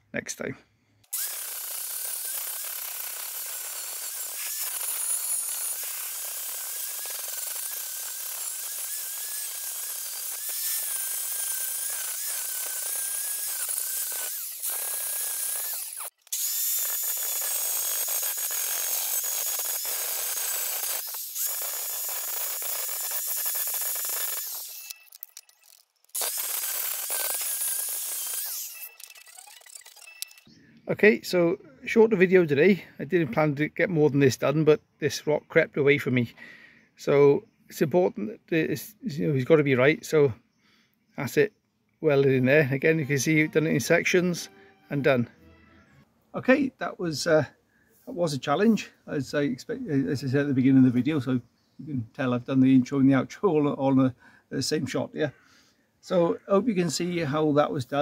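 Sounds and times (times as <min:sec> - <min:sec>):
angle grinder grinding metal: 0:01.1 - 0:30.6.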